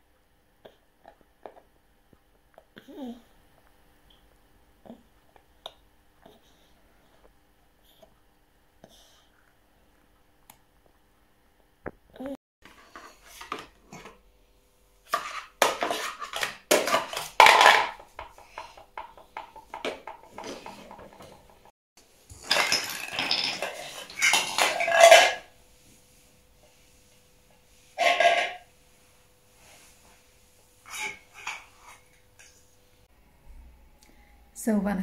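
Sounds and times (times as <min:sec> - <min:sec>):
plastic toys clattering: 0:15.1 - 0:21.7, 0:22.3 - 0:25.5, 0:28.0 - 0:28.6.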